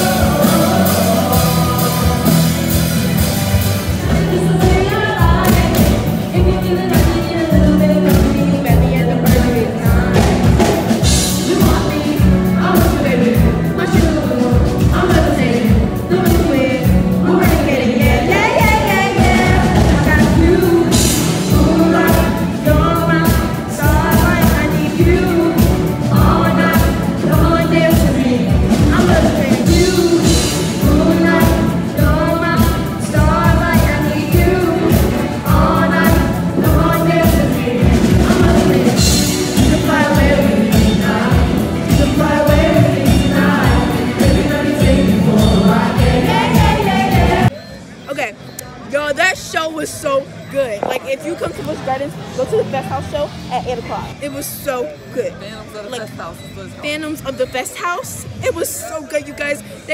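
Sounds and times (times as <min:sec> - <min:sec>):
person singing along: 0:00.0 - 0:03.3, 0:04.0 - 0:47.5
pop music over sound system: 0:00.0 - 0:59.9.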